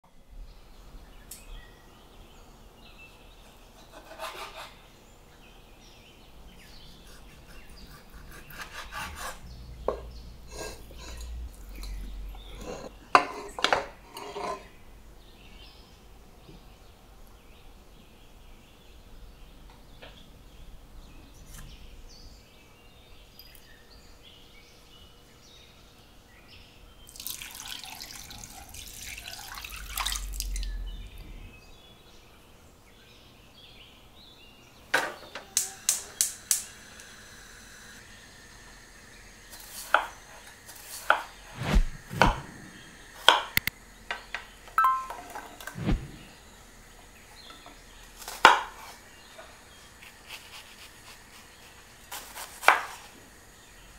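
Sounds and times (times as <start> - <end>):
tap water running: 27.1 - 30.7
knife chopping on wooden board: 41.0 - 42.4.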